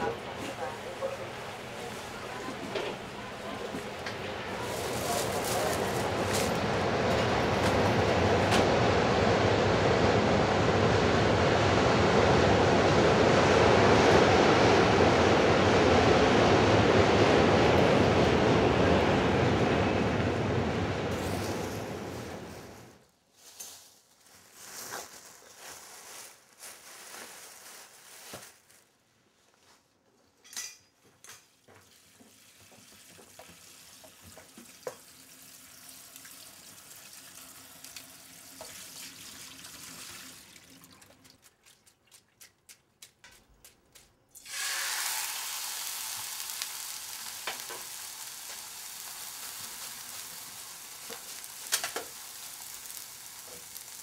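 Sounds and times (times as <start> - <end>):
kitchen clatter: 30.4 - 31.5
water running at sink: 31.7 - 41.9
food sizzling in a pan: 44.4 - 54.0.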